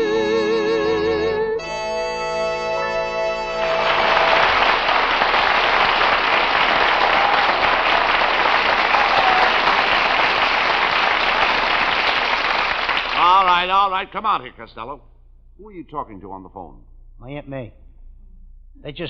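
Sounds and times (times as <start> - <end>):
audience applauding: 3.0 - 13.8.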